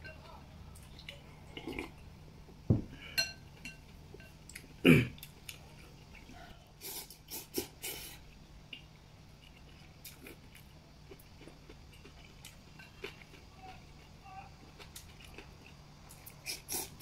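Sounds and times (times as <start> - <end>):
ceramic bowl clinking: 2.7 - 4.4.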